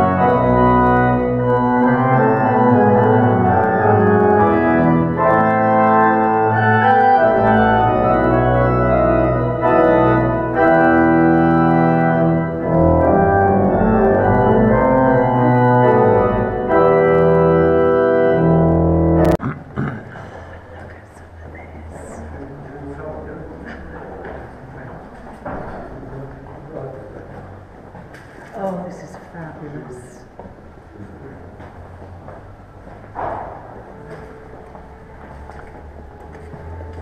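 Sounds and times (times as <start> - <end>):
pipe organ chords: 0.0 - 19.9, 31.5 - 37.0
deep organ bass notes: 0.0 - 20.0.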